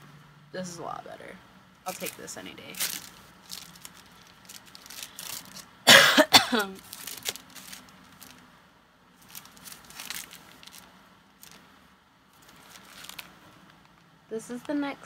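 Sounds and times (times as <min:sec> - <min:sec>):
items being handled: 0:01.9 - 0:08.4, 0:09.2 - 0:11.7, 0:12.3 - 0:14.1
woman coughing: 0:05.9 - 0:06.8.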